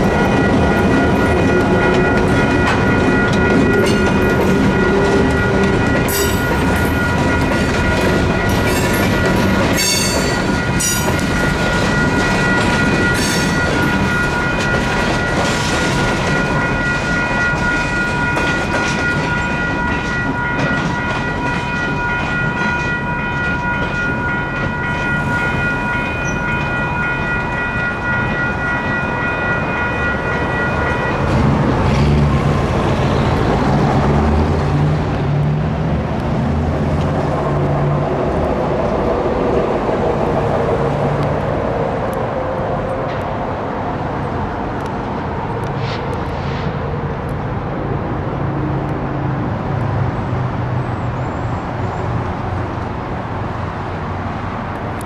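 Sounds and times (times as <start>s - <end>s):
railroad crossing bell ringing: 0.0s - 35.5s
freight train rumbling past: 0.0s - 55.0s.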